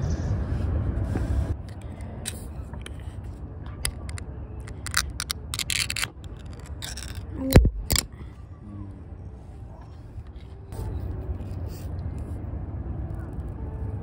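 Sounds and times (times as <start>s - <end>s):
can lid metallic clicks: 3.8s - 7.2s, 7.8s - 8.1s
can lid scraping tears: 3.8s - 8.1s.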